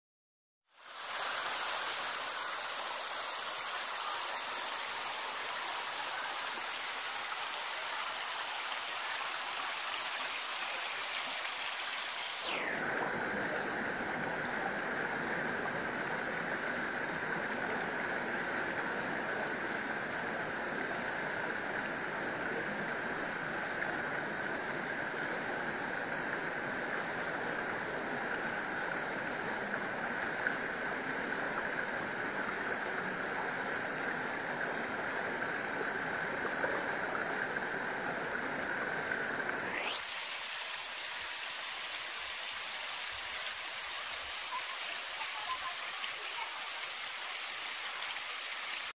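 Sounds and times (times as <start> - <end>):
river rushing over rocks: 0.8 - 12.8, 39.6 - 48.9.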